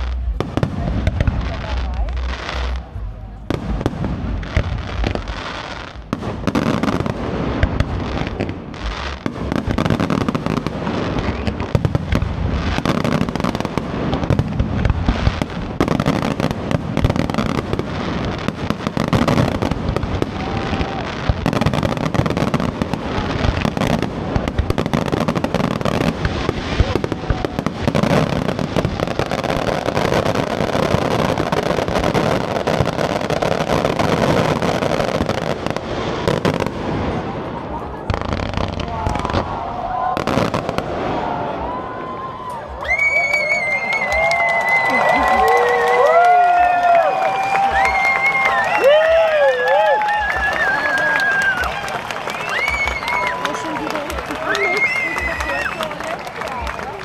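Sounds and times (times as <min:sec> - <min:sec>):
fireworks bursting and crackling: 0:00.0 - 0:57.0.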